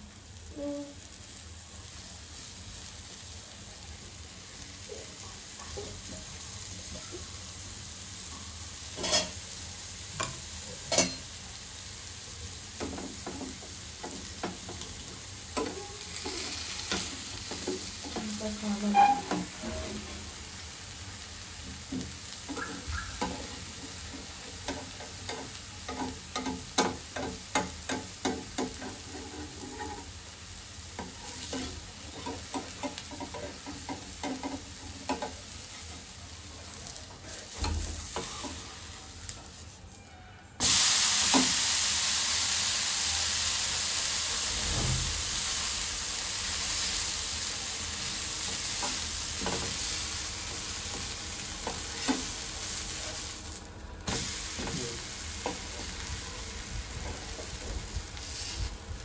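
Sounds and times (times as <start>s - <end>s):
loud steady sizzle: 0.0s - 59.0s
batter crackling and popping: 44.5s - 59.0s.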